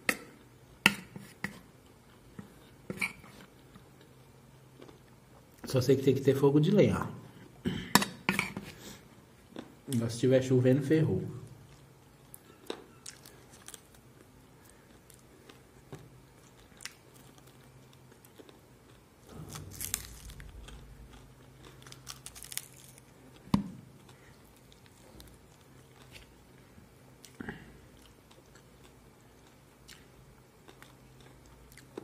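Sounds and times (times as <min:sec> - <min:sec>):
person chewing crispy chicken: 0:11.6 - 0:26.6, 0:27.2 - 0:32.0.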